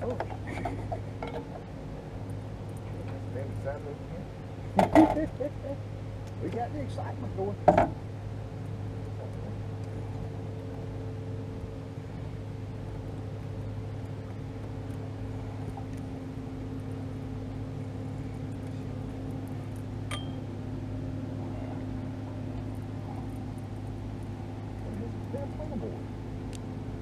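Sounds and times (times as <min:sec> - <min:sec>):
boat motor humming: 0:00.0 - 0:27.0
sharp metallic clink: 0:20.1 - 0:20.4.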